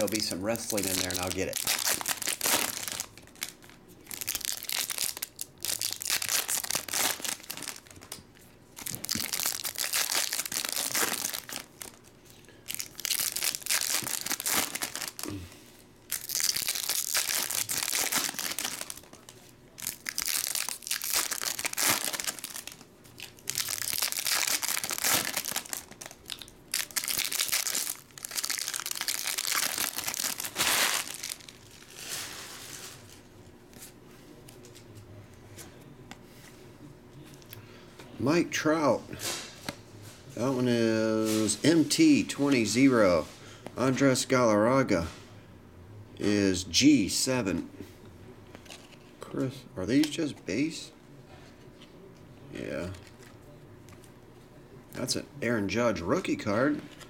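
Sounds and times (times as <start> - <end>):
foil wrappers tearing and crinkling: 0.0 - 8.2, 8.8 - 12.1, 12.7 - 15.3, 16.1 - 33.2.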